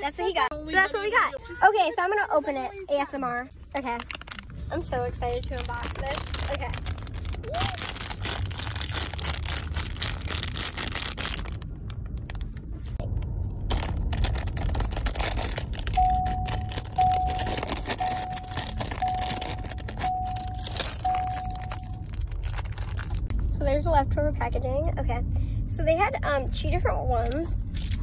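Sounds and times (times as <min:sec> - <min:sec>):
plastic packaging crinkling: 0:03.7 - 0:12.7, 0:13.6 - 0:23.3
car warning chime beeping: 0:15.8 - 0:22.2.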